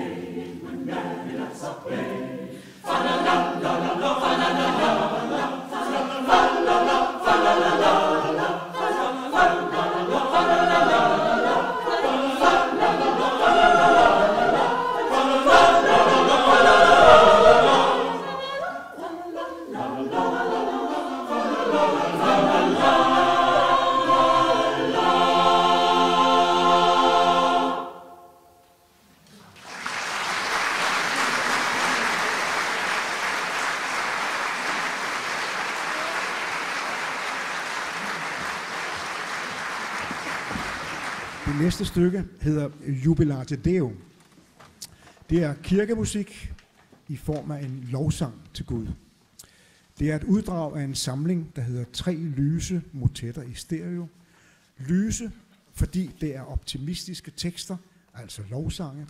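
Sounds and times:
mixed choir singing: 0:00.0 - 0:28.5
applause: 0:29.4 - 0:41.8.

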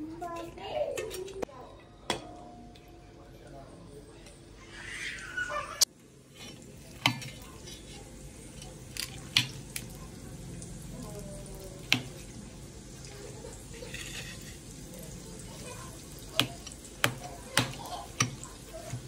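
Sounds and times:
metal spatula scraping: 0:06.3 - 0:08.1, 0:13.5 - 0:14.9.

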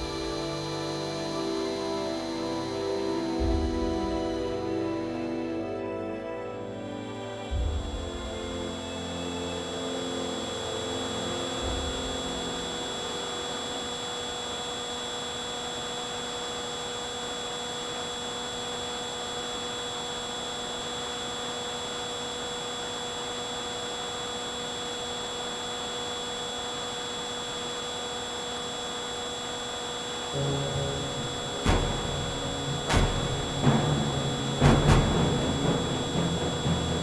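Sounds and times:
background music: 0:00.0 - 0:14.5, 0:30.3 - 0:37.0
model plane motor whining: 0:00.0 - 0:34.7.

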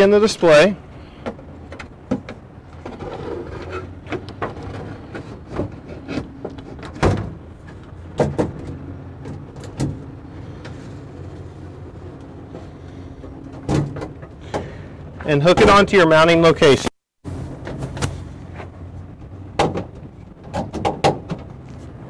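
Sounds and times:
steady low hum: 0:00.1 - 0:15.4.

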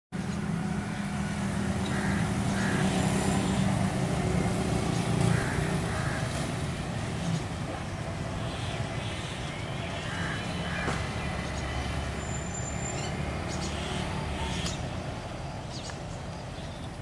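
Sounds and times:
diesel locomotive engine drone: 0:00.2 - 0:17.0.

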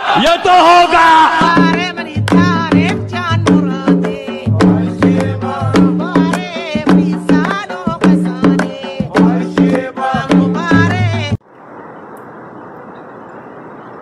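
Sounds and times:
song with singing and drums: 0:00.7 - 0:11.4.

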